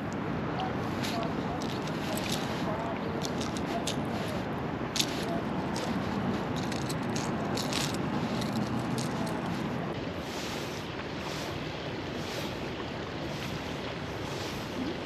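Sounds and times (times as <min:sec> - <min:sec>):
river rushing: 0:00.0 - 0:15.0
fishing lure clicking and rattling: 0:03.2 - 0:04.1, 0:05.0 - 0:09.4.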